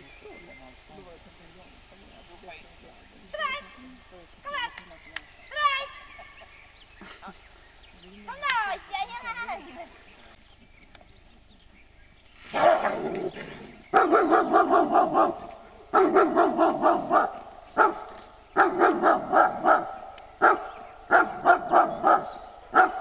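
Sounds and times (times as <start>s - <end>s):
dog barking: 12.5s - 13.1s, 13.9s - 23.0s.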